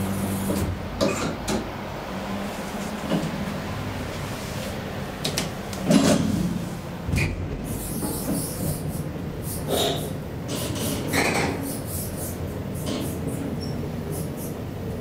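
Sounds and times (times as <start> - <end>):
elevator hum: 0.0 - 9.4.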